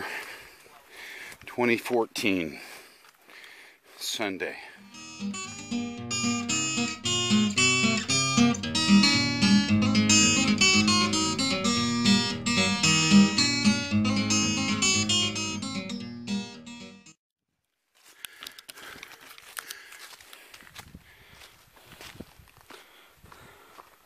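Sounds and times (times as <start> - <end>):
fast acoustic guitar picking: 4.8 - 17.0.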